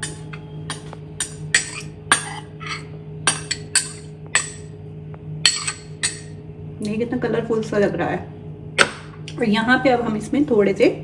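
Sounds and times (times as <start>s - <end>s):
metal spoon clinking on glass bowl: 5.5s - 6.3s.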